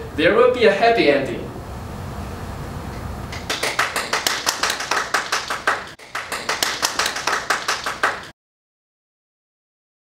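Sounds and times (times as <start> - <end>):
hands clapping quickly: 3.4 - 8.3.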